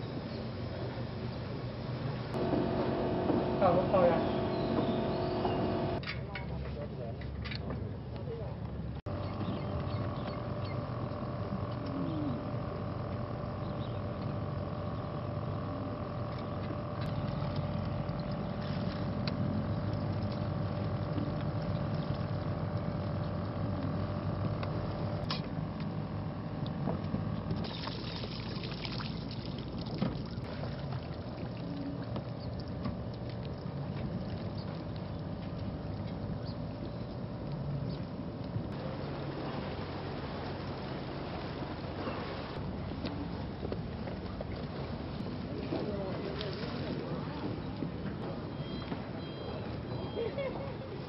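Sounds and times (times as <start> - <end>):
low engine rumble and hum: 0.0 - 6.0, 7.9 - 51.0
water rushing: 2.3 - 6.0, 38.7 - 47.5.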